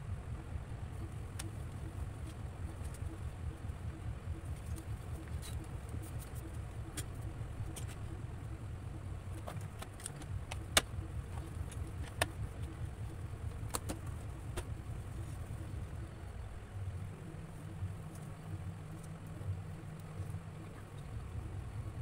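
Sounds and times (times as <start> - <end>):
low pulsing hum: 0.0 - 22.0.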